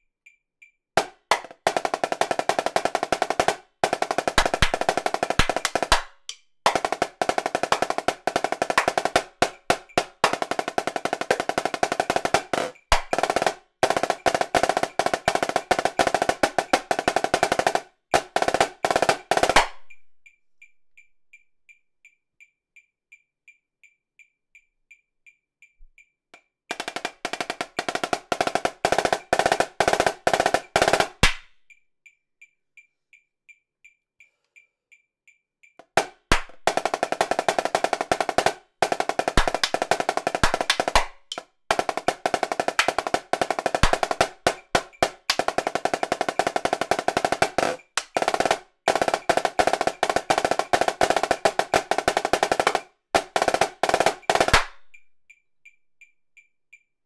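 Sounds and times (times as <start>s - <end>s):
snare drum rolls: 1.0s - 20.0s, 26.7s - 31.5s, 35.8s - 54.9s
metronome clicking: 4.1s - 17.8s, 18.4s - 23.2s, 37.9s - 56.9s.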